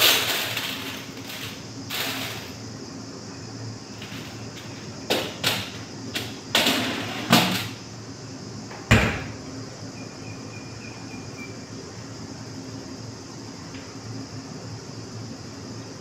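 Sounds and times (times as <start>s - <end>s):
metal tray clattering into oven racks: 0.0s - 2.6s
oven door shutting: 8.7s - 9.4s.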